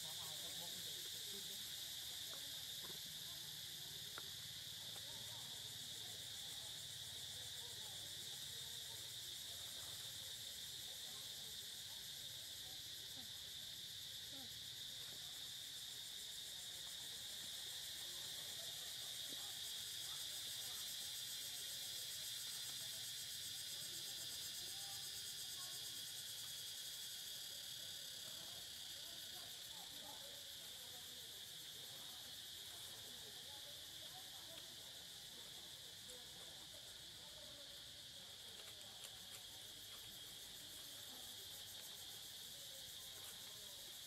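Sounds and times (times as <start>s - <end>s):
insects droning: 0.0s - 44.0s.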